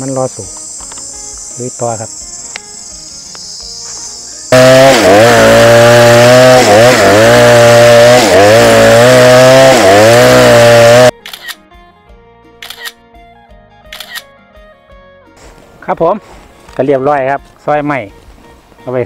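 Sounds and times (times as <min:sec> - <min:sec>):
insects chirring: 0:00.0 - 0:05.4
chainsaw cutting a log: 0:04.5 - 0:11.2.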